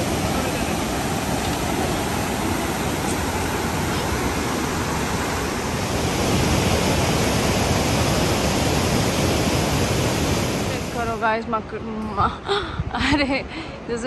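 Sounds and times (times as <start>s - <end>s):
river rushing over boulders: 0.0s - 11.4s.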